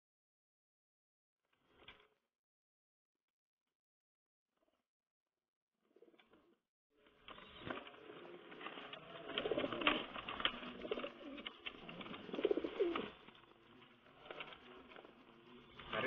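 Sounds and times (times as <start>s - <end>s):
pigeons cooing: 7.6s - 13.4s.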